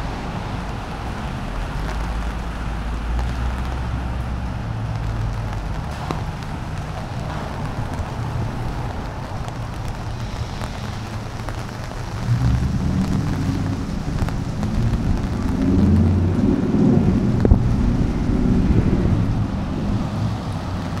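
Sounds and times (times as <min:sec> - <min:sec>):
low rumbling wind noise: 0:00.0 - 0:21.0
rain falling: 0:00.0 - 0:21.0.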